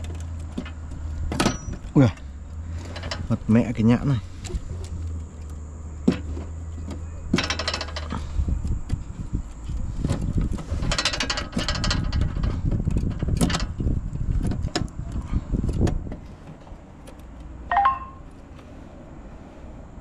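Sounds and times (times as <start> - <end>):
cables and connectors clicking: 0.0 - 3.3.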